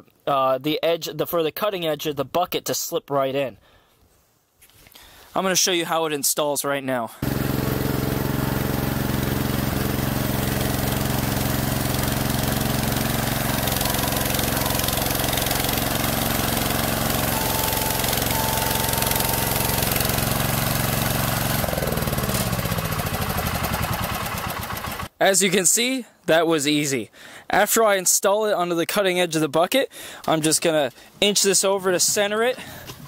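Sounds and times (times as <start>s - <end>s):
garden tractor engine running: 7.2s - 25.1s.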